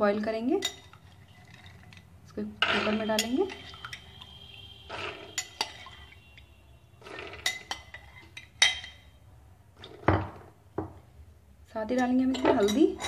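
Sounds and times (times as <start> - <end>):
spoon clinking against glass and metal: 0.6 - 2.0, 2.6 - 4.2, 5.3 - 6.2, 7.2 - 9.2, 11.9 - 13.0.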